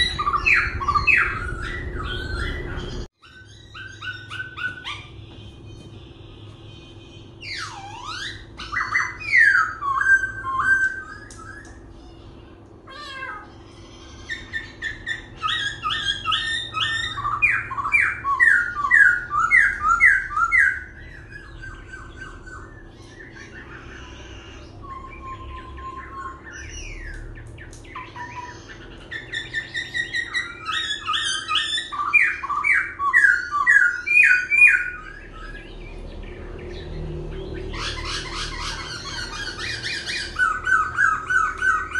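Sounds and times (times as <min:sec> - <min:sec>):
bird singing whistled notes: 0:24.8 - 0:41.9.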